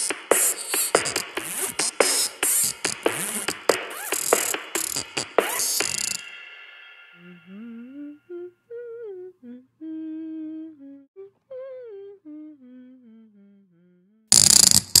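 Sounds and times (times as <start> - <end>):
person humming: 7.2 - 14.3.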